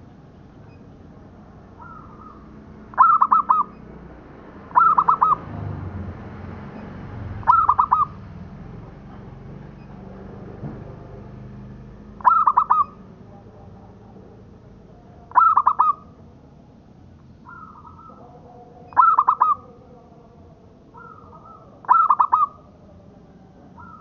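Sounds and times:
dove cooing: 1.6s - 3.7s, 4.7s - 5.5s, 7.4s - 8.2s, 12.2s - 16.5s, 17.4s - 20.3s, 20.9s - 24.0s.

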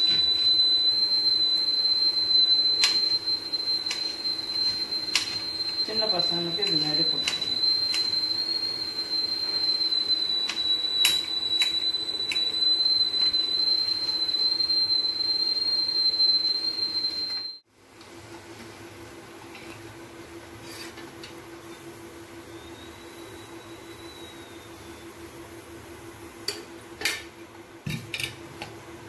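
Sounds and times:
high whistling tone: 0.0s - 17.6s, 22.4s - 25.4s.

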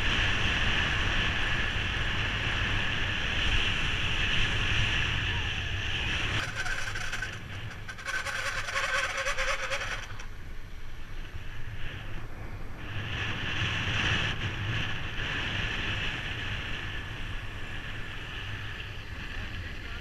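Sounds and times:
wind rushing over microphone: 0.0s - 20.0s
tyres running on asphalt: 2.8s - 11.4s
buzzing rattling sound: 6.3s - 10.5s.

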